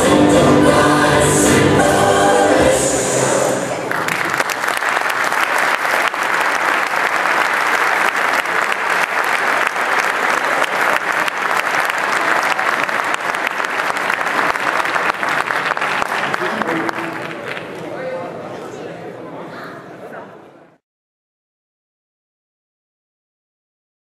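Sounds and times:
audience applauding: 3.8s - 17.9s.

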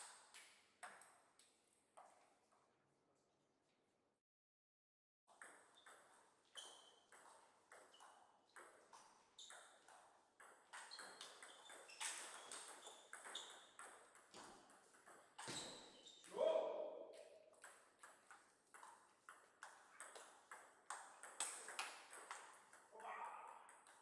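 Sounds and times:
table tennis ball hits: 17.5s - 24.0s.

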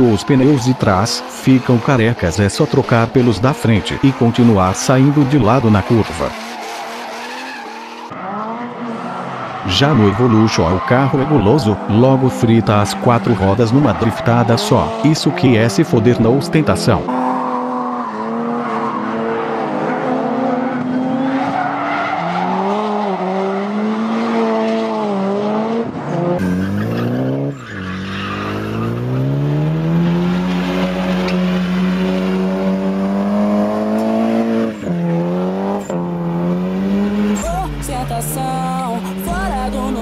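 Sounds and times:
tyres screeching: 0.0s - 8.1s, 26.4s - 40.0s
car engine revving: 0.0s - 40.0s.

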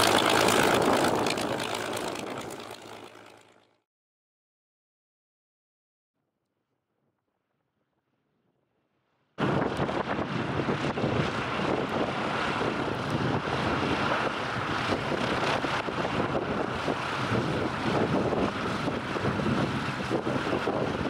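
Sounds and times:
wind noise on microphone: 0.0s - 2.8s, 9.4s - 21.0s
radial aircraft engine rumbling: 0.0s - 3.8s, 9.4s - 21.0s.

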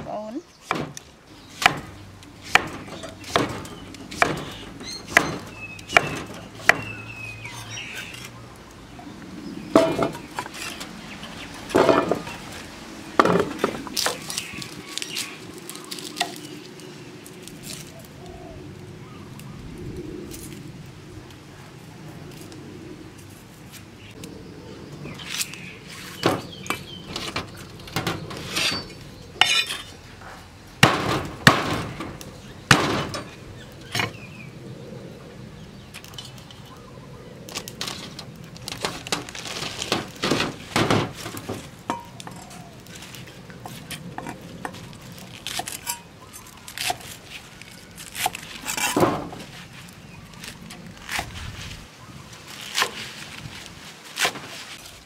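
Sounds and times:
cleaver cutting leafy greens: 0.0s - 8.4s, 13.2s - 18.2s, 37.5s - 55.0s.

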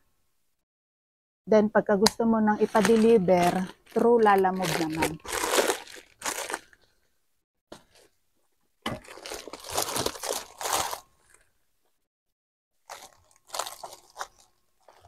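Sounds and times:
plastic packaging crinkling: 2.6s - 7.1s, 8.9s - 11.6s, 12.8s - 15.0s.

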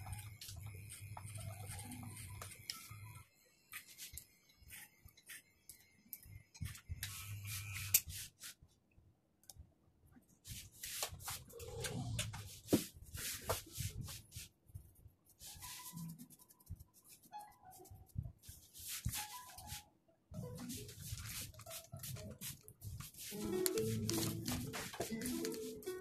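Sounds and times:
barber's tools scratching hair: 6.6s - 8.6s.

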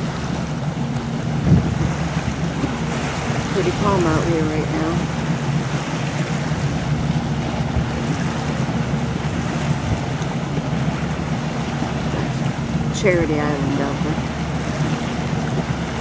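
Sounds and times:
boat engine humming: 0.0s - 16.0s
water noise: 0.0s - 16.0s
wind noise: 1.2s - 4.3s.

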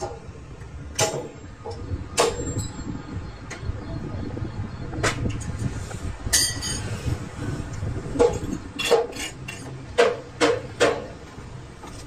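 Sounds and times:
hammer striking steel: 0.9s - 2.8s.

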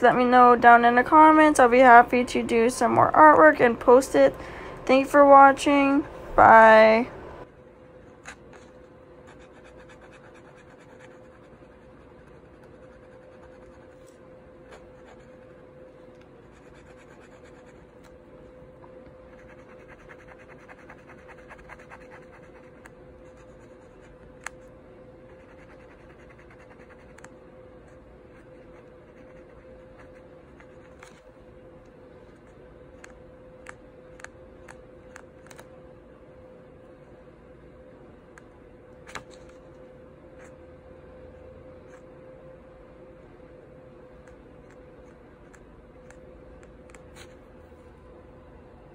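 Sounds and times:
marker scratching on paper: 9.3s - 14.0s, 16.5s - 17.8s, 19.3s - 24.2s.

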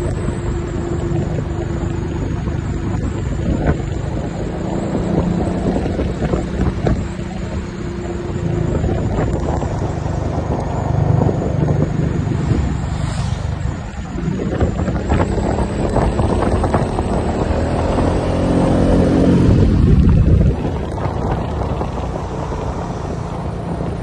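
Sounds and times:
motorcycles passing: 0.0s - 24.0s
scooter engine hum: 0.0s - 24.0s
wind rushing over microphone: 0.0s - 24.0s.

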